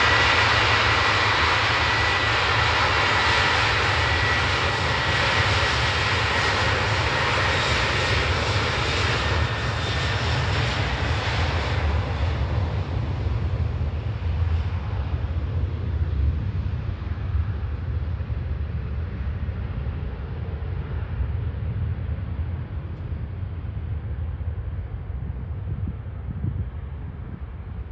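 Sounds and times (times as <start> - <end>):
jet engines whining: 0.0 - 18.0.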